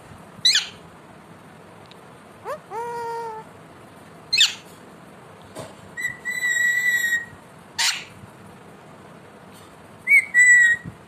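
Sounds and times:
parakeet squawk: 0.4s - 0.8s, 2.4s - 3.5s, 4.3s - 4.7s, 6.0s - 8.2s
parakeet whistling: 2.4s - 3.4s, 4.3s - 4.6s, 6.0s - 8.1s, 10.1s - 10.9s.

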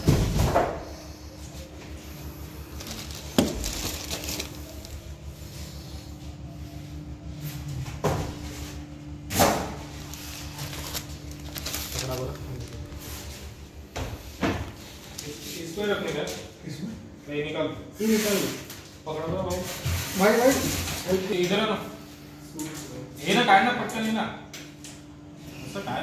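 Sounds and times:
steady low hum: 0.0s - 26.0s
plastic bags rustling: 1.4s - 6.0s, 9.7s - 13.8s.

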